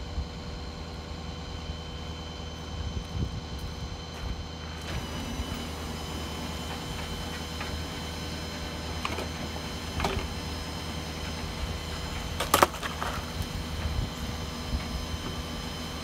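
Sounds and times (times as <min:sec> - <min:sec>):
tow truck engine droning: 0:00.0 - 0:16.0.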